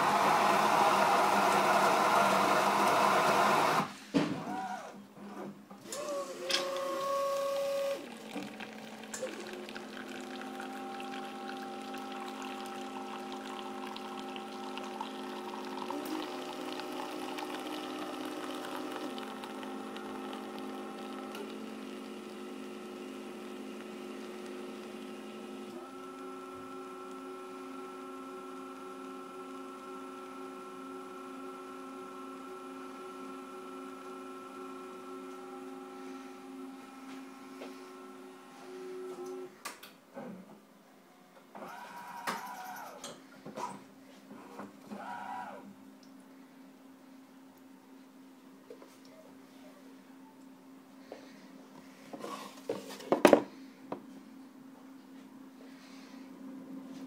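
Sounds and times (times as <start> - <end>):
coffee machine grinding beans: 0.0 - 3.9, 5.8 - 39.5, 41.6 - 43.1
machine humming while dispensing: 0.0 - 5.0, 5.8 - 39.5.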